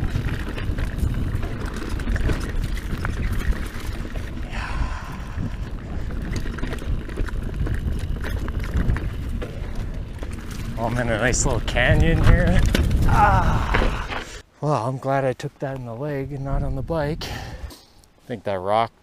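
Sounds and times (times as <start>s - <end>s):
bike clicking and rattling: 0.0s - 14.4s
wind rumble on microphone: 0.0s - 14.4s, 16.2s - 17.7s
tyres on dirt and stones: 0.0s - 17.6s.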